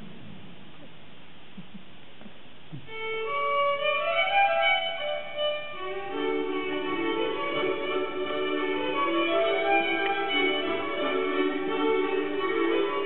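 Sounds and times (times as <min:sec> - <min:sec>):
low held notes: 0:00.0 - 0:13.0
fiddle folk dance tune: 0:02.9 - 0:13.0.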